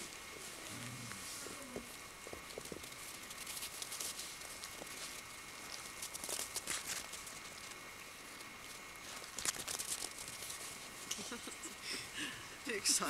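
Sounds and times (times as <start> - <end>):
paws crunching in snow: 0.0 - 7.5.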